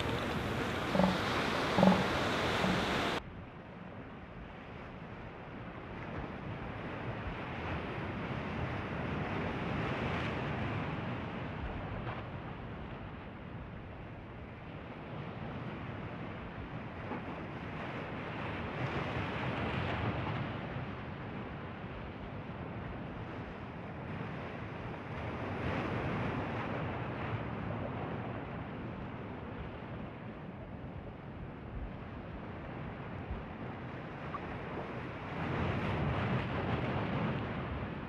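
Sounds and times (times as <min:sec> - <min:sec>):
ocean surf: 0:00.0 - 0:03.2, 0:17.2 - 0:38.0
wind on microphone: 0:00.0 - 0:38.0.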